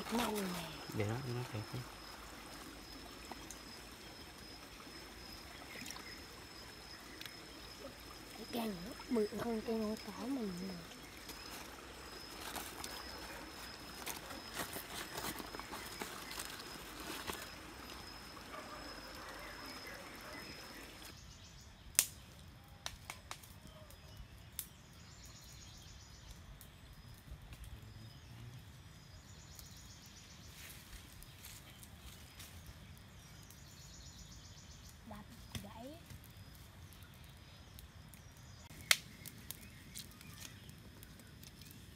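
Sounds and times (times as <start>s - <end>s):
twigs cracking: 0.0s - 1.0s, 10.9s - 18.2s, 38.2s - 41.9s
water trickling over rocks: 0.0s - 21.2s, 34.8s - 41.9s
high insect whine: 0.0s - 21.6s
dry stick snapping: 22.0s - 22.2s, 38.7s - 40.7s.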